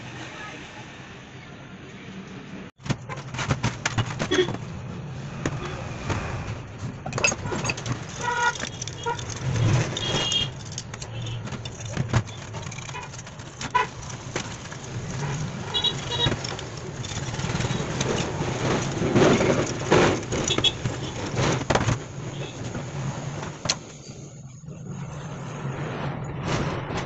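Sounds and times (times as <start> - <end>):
metal parts clinking: 7.1 - 21.4.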